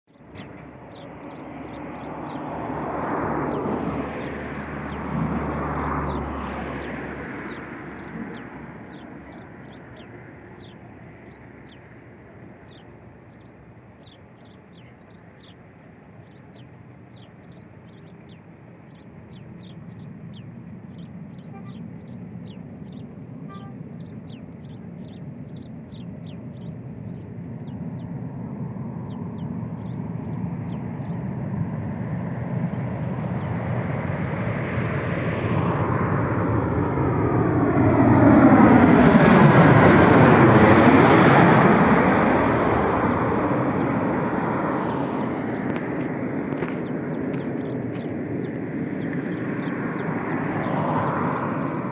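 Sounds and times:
high bird chirps: 0.1 - 11.9, 12.6 - 28.2, 28.9 - 31.3
distant jet engine rumble: 0.1 - 51.9.

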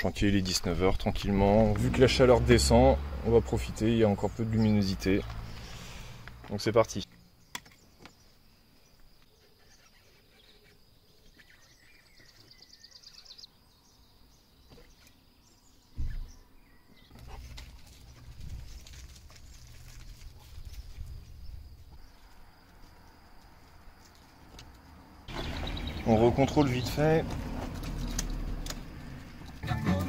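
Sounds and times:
bird trill: 9.4 - 13.5, 25.3 - 27.0
sharp thump: 16.0 - 16.3.

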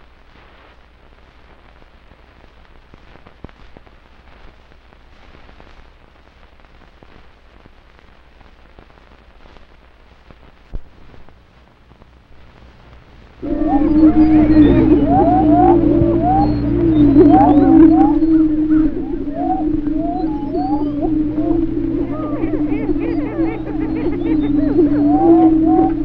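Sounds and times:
film soundtrack crackle and pops: 0.0 - 26.0
low hum: 12.8 - 26.0.

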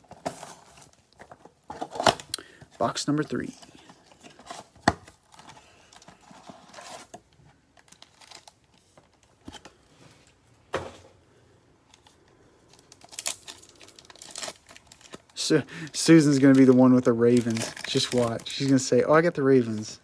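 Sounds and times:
foil pack crinkling torn open: 7.8 - 8.8, 12.7 - 19.0.

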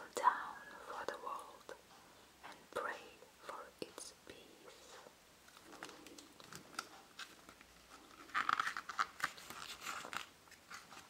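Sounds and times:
book pages rustling: 4.8 - 11.0
page crinkling as it turns: 5.5 - 11.0.

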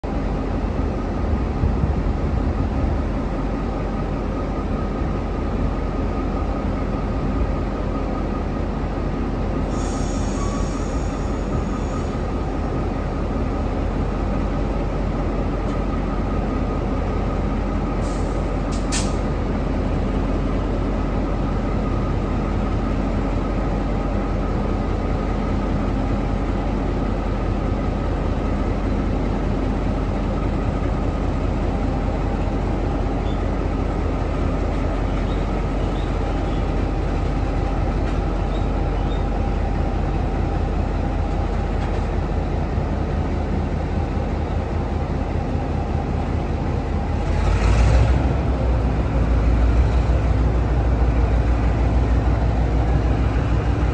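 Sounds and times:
locomotive engine humming: 0.0 - 53.9.

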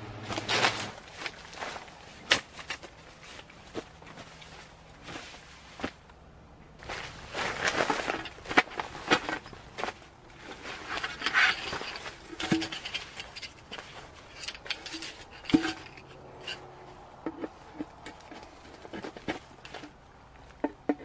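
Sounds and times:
fabric bag rustling: 0.3 - 6.0, 6.8 - 14.3
metal poles clicking and knocking: 7.4 - 21.0.

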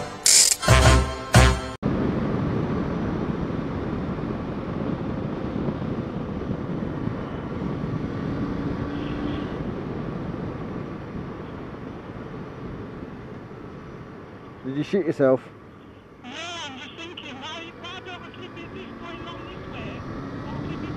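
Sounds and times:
wind rushing over microphone: 1.8 - 14.4.

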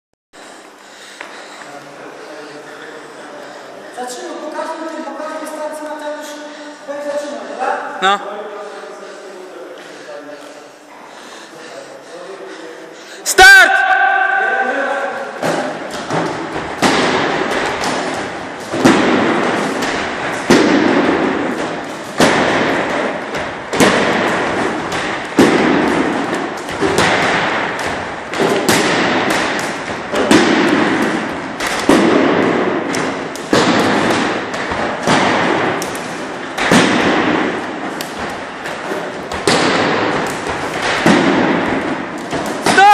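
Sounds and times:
sticks thudding on dummy: 15.4 - 42.9.

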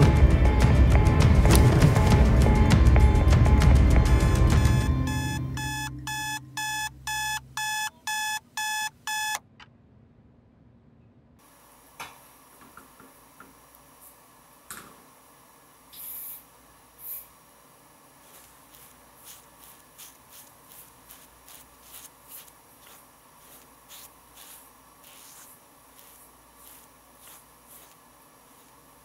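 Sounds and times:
aerosol shaving foam hissing: 18.1 - 29.0
fingers rubbing foam on face: 18.2 - 29.0.

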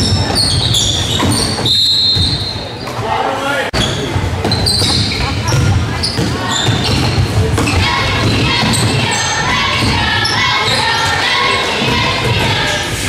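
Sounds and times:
shoe squeaks: 0.0 - 3.1, 3.8 - 11.2
mix of voices: 2.6 - 13.0.

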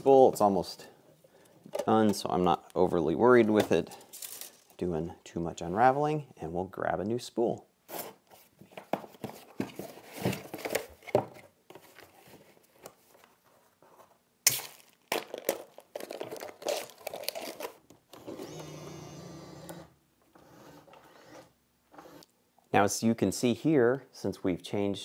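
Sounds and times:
packaging crinkling and tearing: 14.5 - 17.9.

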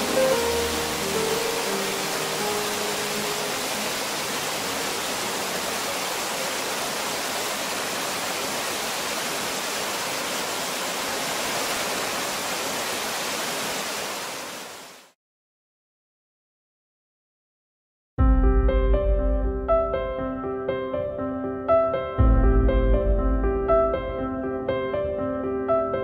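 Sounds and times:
water rushing through mill wheel: 0.0 - 14.9.

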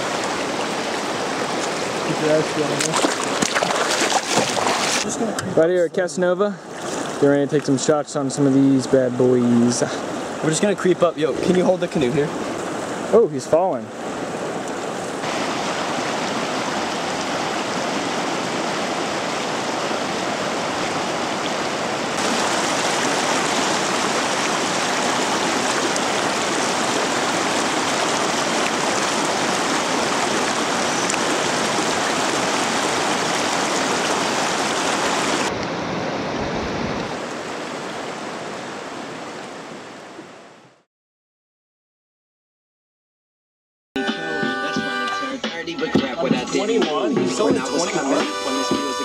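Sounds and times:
river water rushing over rocks: 0.0 - 5.6, 6.6 - 7.8, 8.6 - 40.4.

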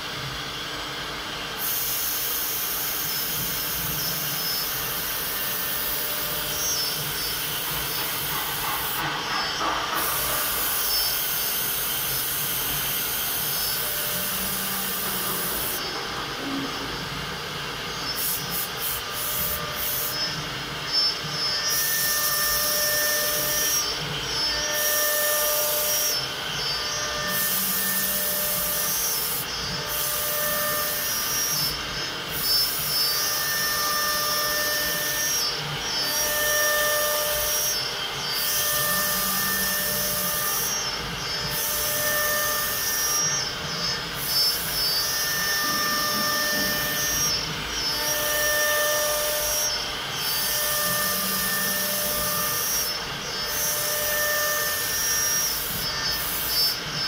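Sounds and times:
cnc router cutting wood: 0.0 - 57.0
router whine: 0.0 - 57.0.

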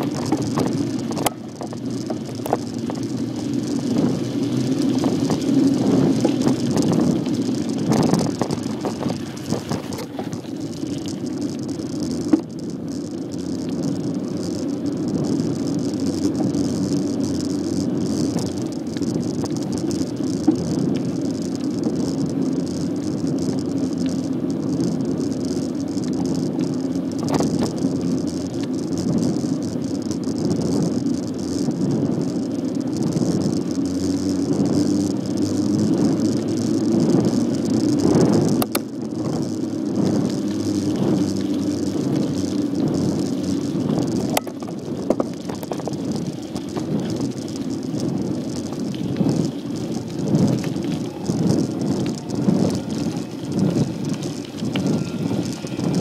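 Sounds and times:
bicycle knocks over bumps: 0.0 - 12.5, 35.7 - 56.0
bicycle rolling and rattling: 0.0 - 56.0.

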